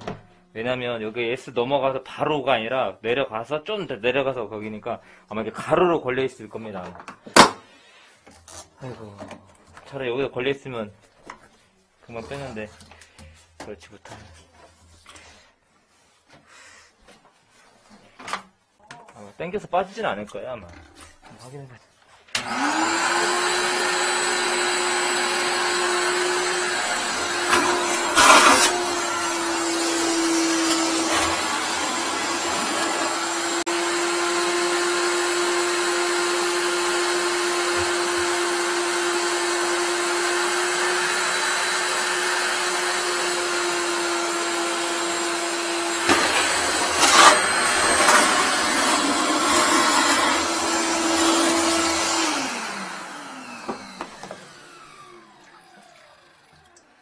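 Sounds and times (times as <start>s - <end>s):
wet-dry vacuum motor running: 22.4s - 57.0s.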